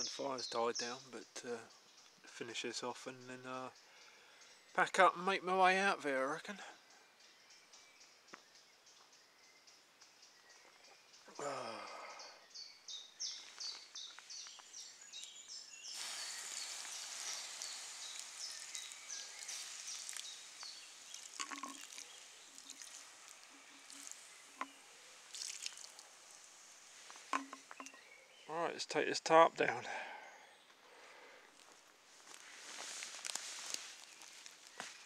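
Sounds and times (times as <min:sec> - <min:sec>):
hiss with crackling and pattering: 0:14.2 - 0:28.0, 0:32.1 - 0:35.0.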